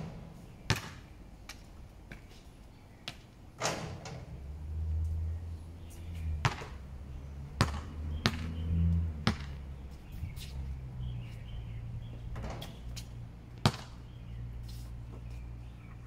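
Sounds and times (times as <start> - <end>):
basketball bouncing on hard court: 0.7 - 1.0, 6.4 - 6.8, 7.6 - 8.5, 9.2 - 9.6, 13.6 - 14.0.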